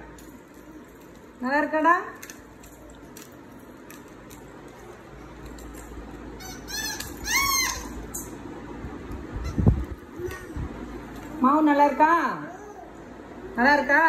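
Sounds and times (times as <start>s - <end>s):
toddler squealing: 6.4s - 8.1s.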